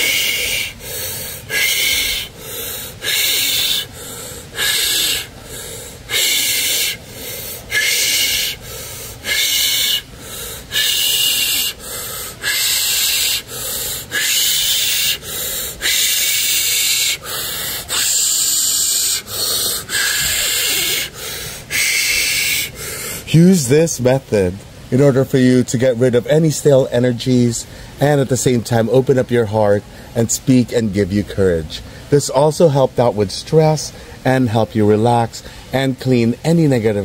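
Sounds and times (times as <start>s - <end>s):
man breathing rapidly through mouth: 0.0s - 23.3s.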